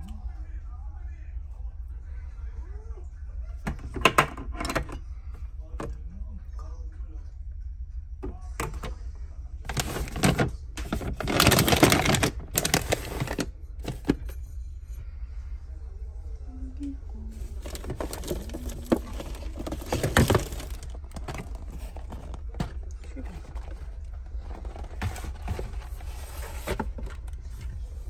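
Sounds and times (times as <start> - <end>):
cat food packaging rustling: 9.7 - 14.3, 17.4 - 28.0.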